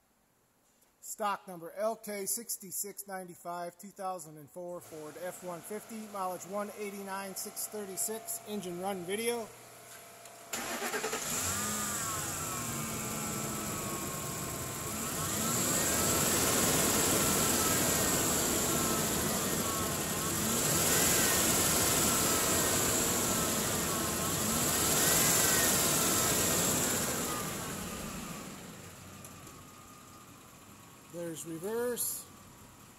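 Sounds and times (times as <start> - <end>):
truck engine revving: 10.6 - 28.9.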